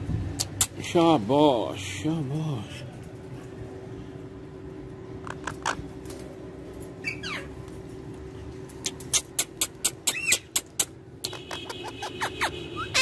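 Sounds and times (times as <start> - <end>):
parakeet chirping: 7.0 - 7.5, 9.6 - 10.7, 11.3 - 13.0
parakeet squeak: 7.0 - 7.5, 9.6 - 10.7, 11.4 - 13.0.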